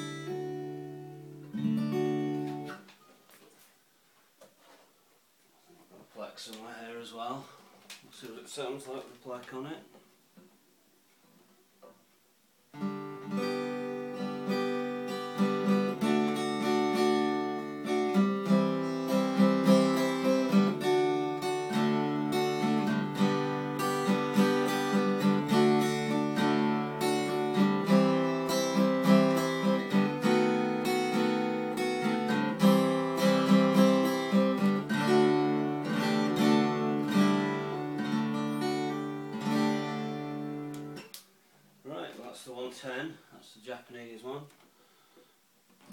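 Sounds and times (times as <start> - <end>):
acoustic guitar playing: 0.0 - 2.9, 12.7 - 41.2.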